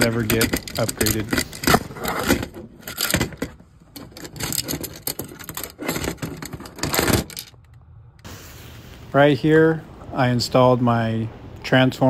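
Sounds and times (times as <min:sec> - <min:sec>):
wiring rustling: 0:00.0 - 0:07.8.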